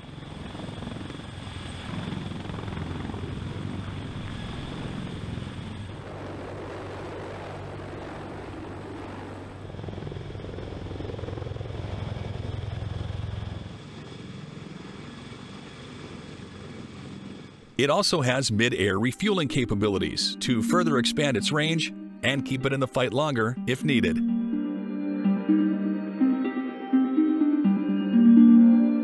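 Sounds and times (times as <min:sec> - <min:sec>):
helicopter rotor beat: 0:00.0 - 0:24.4.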